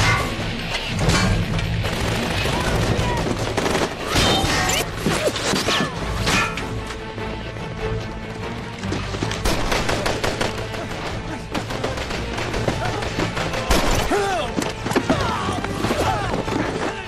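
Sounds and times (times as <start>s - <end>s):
gunshots: 0.0s - 5.8s, 9.4s - 14.4s.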